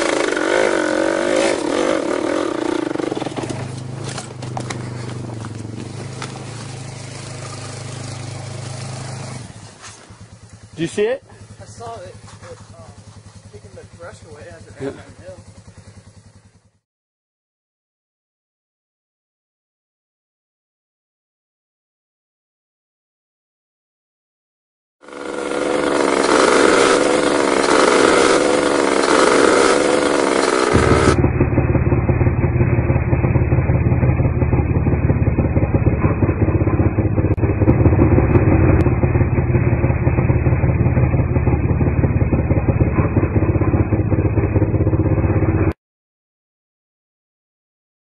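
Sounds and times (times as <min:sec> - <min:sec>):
small vehicle engine running: 0:00.0 - 0:16.8, 0:25.0 - 0:45.8.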